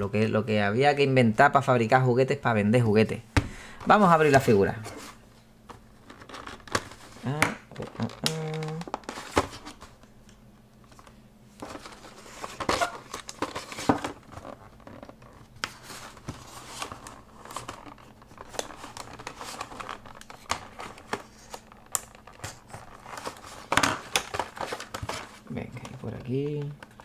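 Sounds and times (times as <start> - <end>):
plastic packaging crinkling and snapping: 5.7 - 27.0.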